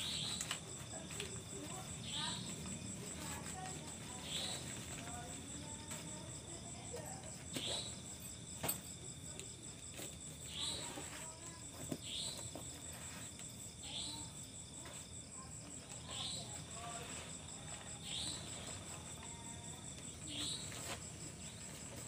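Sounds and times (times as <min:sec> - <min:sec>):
short insect call: 0:00.0 - 0:05.6, 0:10.0 - 0:15.0, 0:15.9 - 0:22.0
crickets chirping trill: 0:00.0 - 0:22.0.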